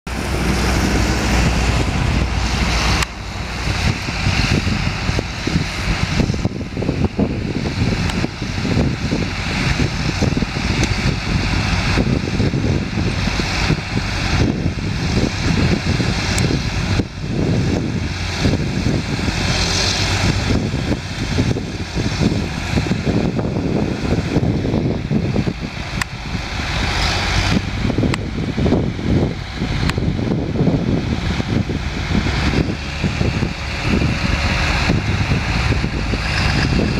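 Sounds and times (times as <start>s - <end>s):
vehicle engine rumble: 0.0s - 36.9s
wind buffeting microphone: 0.1s - 36.9s.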